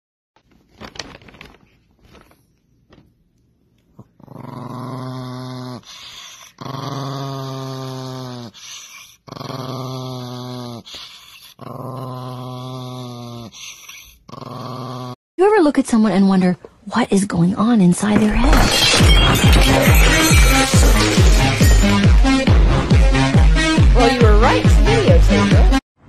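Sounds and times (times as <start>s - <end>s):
clicks and rustles: 0.4s - 3.2s
small dog growling: 4.0s - 15.2s.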